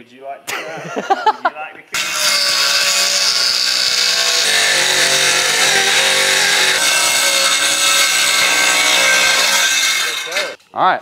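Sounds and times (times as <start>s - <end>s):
circular saw cutting plywood: 2.0s - 10.6s.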